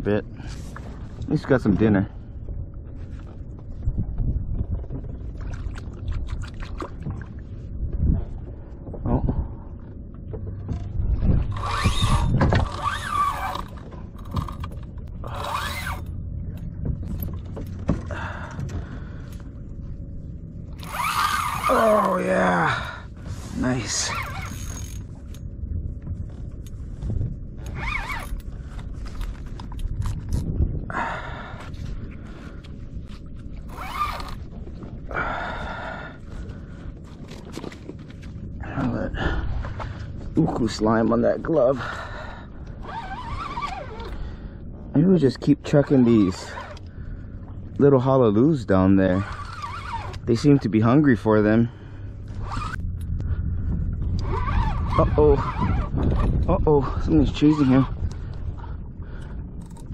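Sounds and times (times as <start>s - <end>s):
water lapping against a hull: 0.0s - 59.9s
wind rumbling on microphone: 0.0s - 59.9s
fishing reel clicking: 20.8s - 21.7s, 24.2s - 25.0s.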